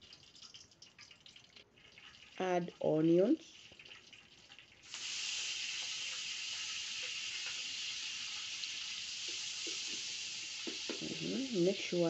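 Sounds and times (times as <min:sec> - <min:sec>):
onions sizzling in oil: 0:04.8 - 0:12.0.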